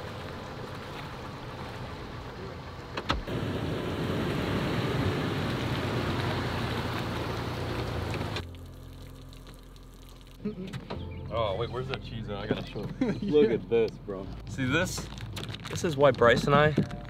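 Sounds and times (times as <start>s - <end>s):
water splashing and streaming: 0.0s - 11.0s
low engine hum: 0.0s - 15.6s.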